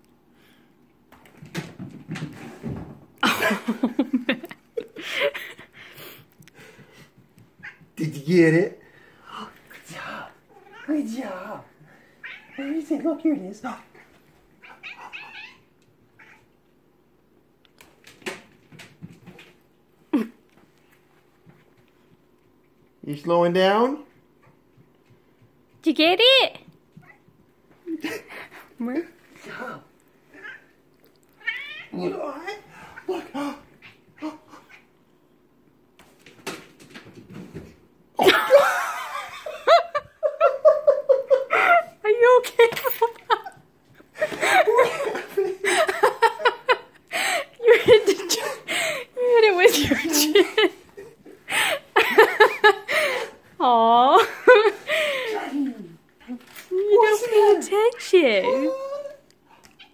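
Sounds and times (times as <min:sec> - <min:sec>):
cat meowing: 0:10.6 - 0:10.9, 0:12.2 - 0:12.6, 0:14.6 - 0:15.6, 0:16.2 - 0:16.5, 0:31.3 - 0:32.0
person laughing loudly: 0:38.2 - 0:42.0, 0:44.2 - 0:50.9.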